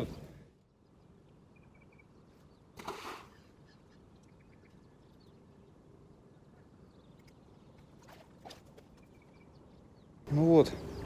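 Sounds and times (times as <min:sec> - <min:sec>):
faint bird chirps: 0:00.0 - 0:11.0
ball splashing into river: 0:02.8 - 0:03.4.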